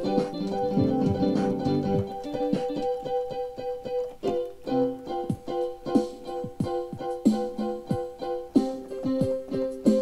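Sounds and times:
piano chords on keyboard: 0.0s - 10.0s.

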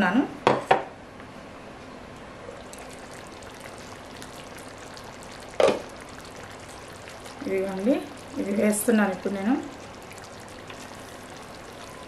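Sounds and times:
curry bubbling in a pan: 2.5s - 12.0s.

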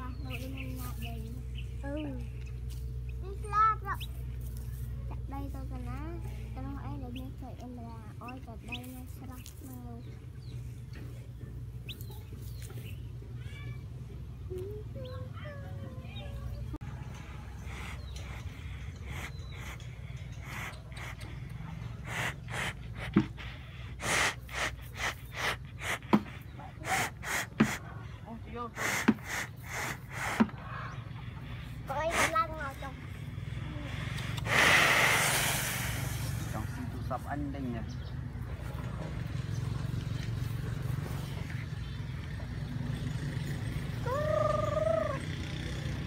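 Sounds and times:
chicken calling: 44.0s - 45.4s.

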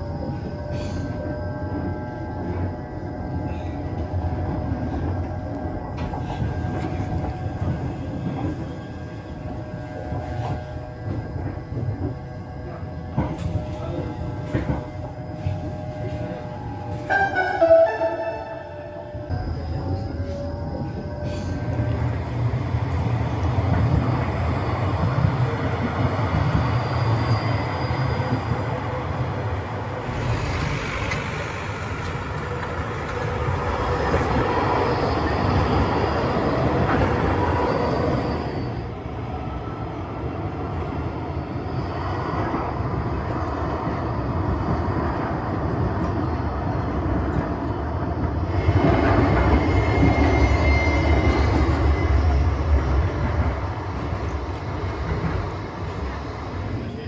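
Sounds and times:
trams rumbling on tracks: 0.0s - 57.0s.

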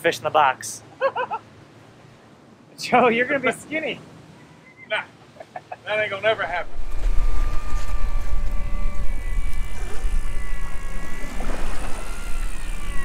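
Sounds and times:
electric fishing reel whining: 6.6s - 13.0s.

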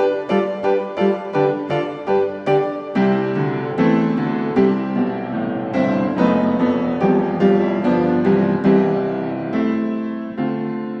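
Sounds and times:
piano music: 0.0s - 11.0s.

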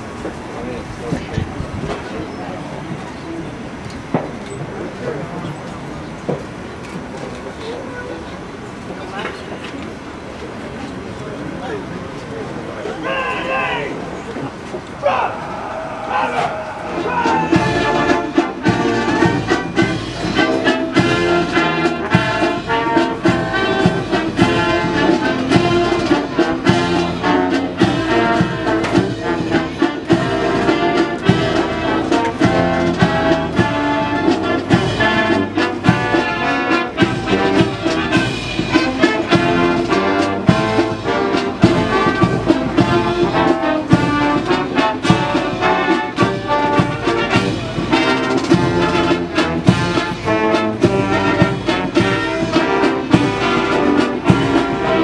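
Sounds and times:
brass band playing: 15.0s - 55.0s.

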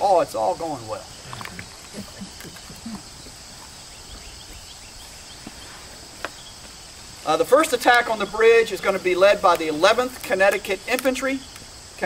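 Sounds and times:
insects chorus: 0.0s - 12.0s.

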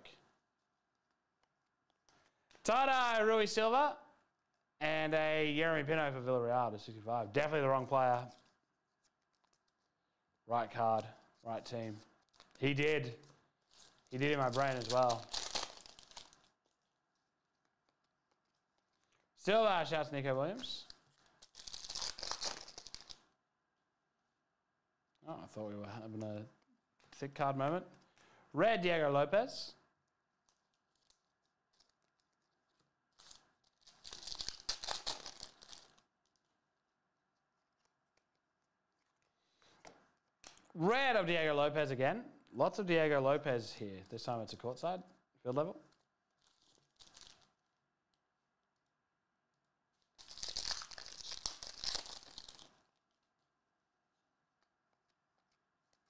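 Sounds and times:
foil wrapper tearing and crinkling: 13.6s - 16.8s, 20.8s - 23.3s, 30.4s - 36.5s, 45.9s - 47.6s, 50.0s - 53.1s.

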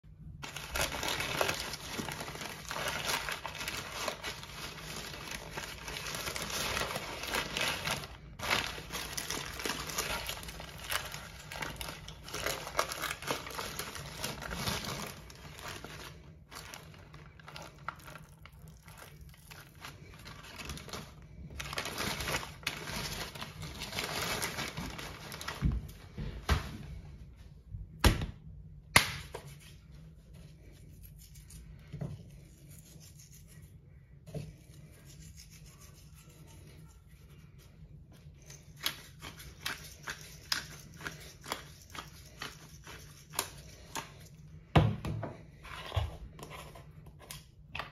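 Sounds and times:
paper wrapping crinkling: 0.4s - 26.0s.

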